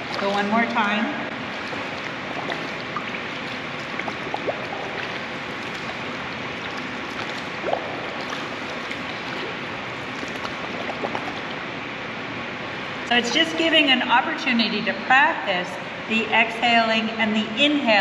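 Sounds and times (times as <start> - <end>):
small splashes: 0.0 - 11.7
swimmer exhaling bubbles: 0.0 - 11.7
pool water rushing: 0.0 - 13.1.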